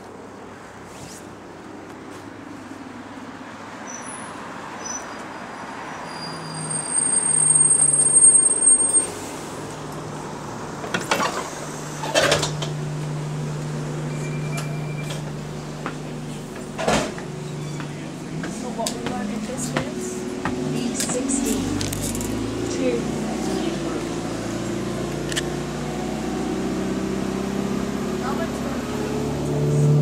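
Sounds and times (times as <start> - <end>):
bus brake squeal: 3.8 - 9.2, 14.1 - 15.3
bus engine idling: 6.9 - 26.2
bus doors knocking open: 13.9 - 21.4.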